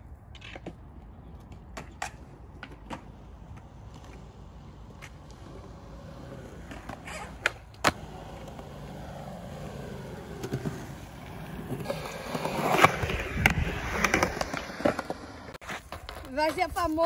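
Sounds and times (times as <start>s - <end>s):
skateboard wheels rolling on concrete: 0.0s - 17.0s
skateboard clacks: 0.4s - 5.4s.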